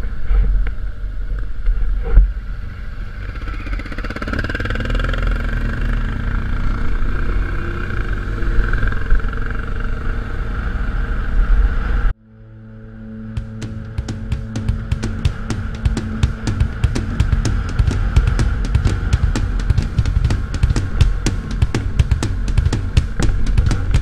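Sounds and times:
wind and road noise: 0.0s - 24.0s
motorcycle engine running: 13.4s - 24.0s
sharp thump: 13.4s - 24.0s.

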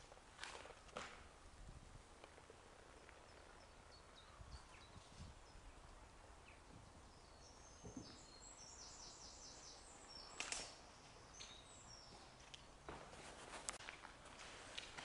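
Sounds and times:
small bird singing: 3.0s - 12.8s.

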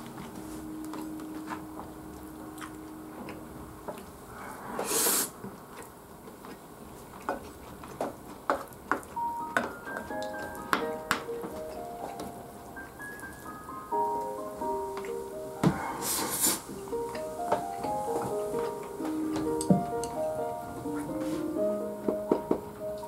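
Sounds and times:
soft background music: 0.0s - 4.3s, 9.1s - 23.0s.

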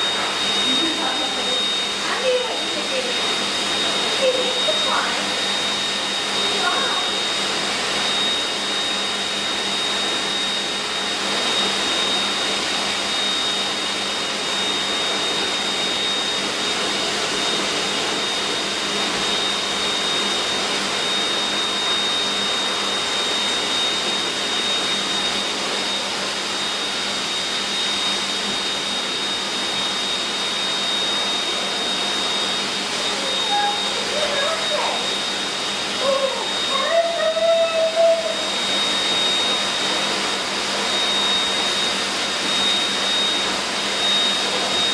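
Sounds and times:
dog dryer blowing air: 0.0s - 44.9s.

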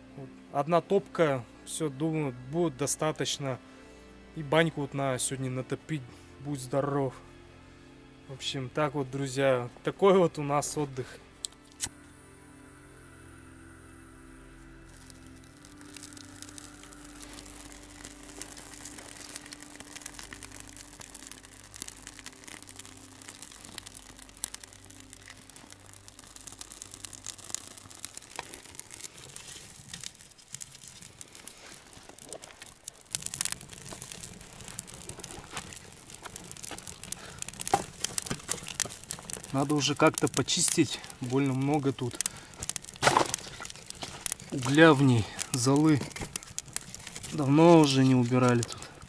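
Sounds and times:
crackling and rustling in stove: 14.8s - 49.0s.

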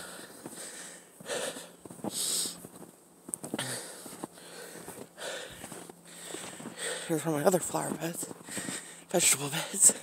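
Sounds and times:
footsteps crunching in snow: 0.0s - 10.0s.

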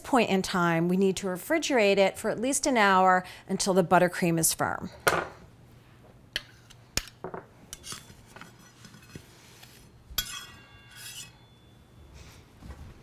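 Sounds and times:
metal spatula clinking on dish: 10.2s - 11.7s.

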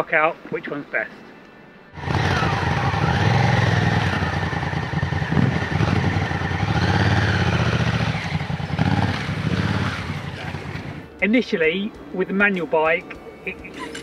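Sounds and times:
motorcycle engine revving: 1.9s - 11.1s.

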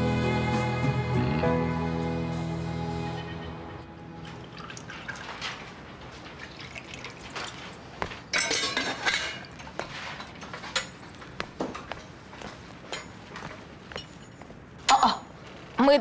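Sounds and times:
tea pouring into a glass: 4.2s - 5.7s, 6.4s - 7.8s
metal and glass clatter: 6.3s - 11.9s, 12.9s - 13.2s
glass and crockery clinks: 8.3s - 11.0s.

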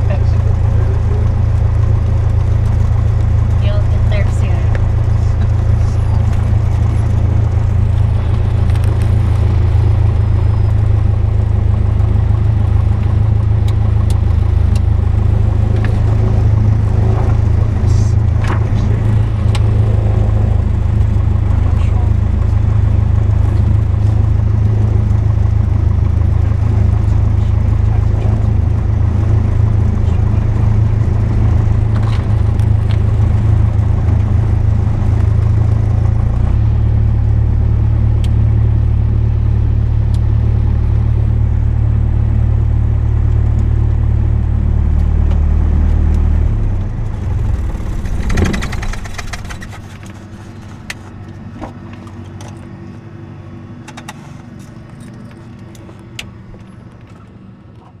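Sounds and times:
airplane engine idling: 0.0s - 58.0s
scattered clicks: 47.4s - 50.2s.

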